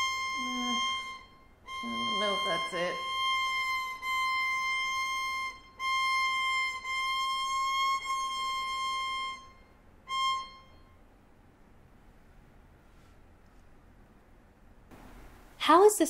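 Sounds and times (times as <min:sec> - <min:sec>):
violin sustained high note: 0:00.0 - 0:11.0.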